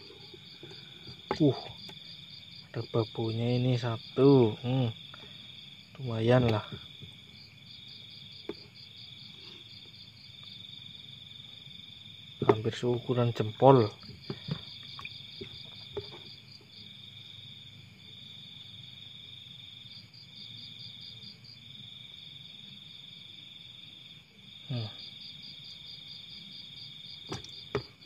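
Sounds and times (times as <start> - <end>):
crickets chirring: 0.0 - 28.0
hands splashing in water: 27.3 - 27.6.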